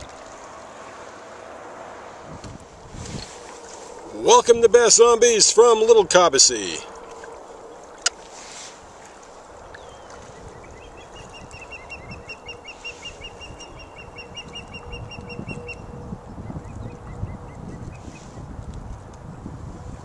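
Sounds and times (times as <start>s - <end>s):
wind rumble on microphone: 0.0s - 6.2s, 6.8s - 20.0s
bird chirping rapidly: 9.8s - 15.9s.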